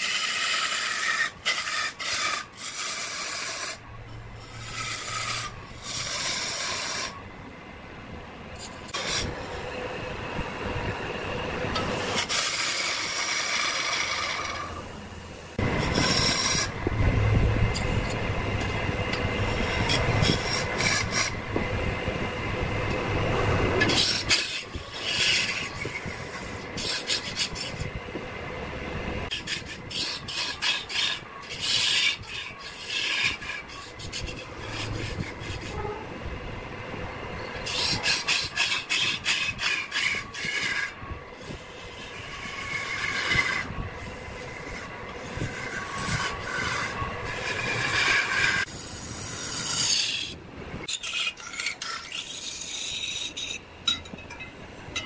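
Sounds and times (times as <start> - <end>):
lathe tool scraping wood: 0.0 - 7.2, 8.6 - 10.2, 11.6 - 21.7, 22.9 - 27.9, 29.3 - 36.0, 37.5 - 53.7
lathe humming: 0.0 - 50.2.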